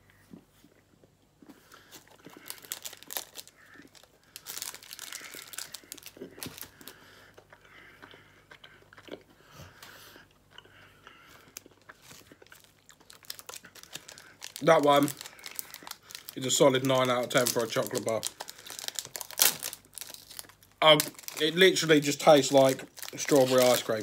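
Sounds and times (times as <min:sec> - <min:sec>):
person chewing: 0:00.2 - 0:16.4.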